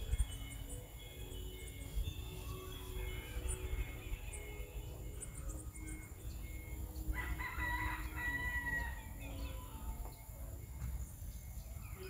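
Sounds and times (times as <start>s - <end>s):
rooster crowing: 7.1s - 10.2s.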